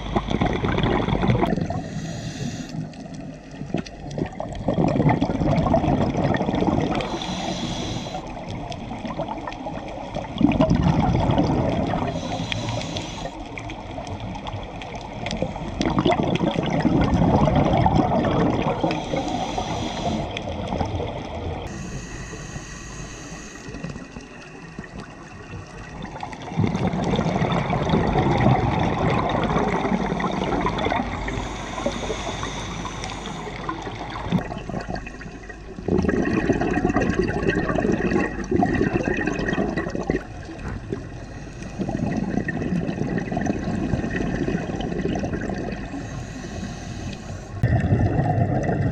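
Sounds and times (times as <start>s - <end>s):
exhaled bubbles rushing: 0.0s - 2.0s, 2.8s - 21.8s, 23.7s - 46.1s, 47.6s - 48.9s
regulator inhale hiss: 1.7s - 3.0s, 6.9s - 8.6s, 12.0s - 13.8s, 18.8s - 20.6s, 21.6s - 24.1s, 31.0s - 34.4s, 41.0s - 42.1s, 45.8s - 47.6s.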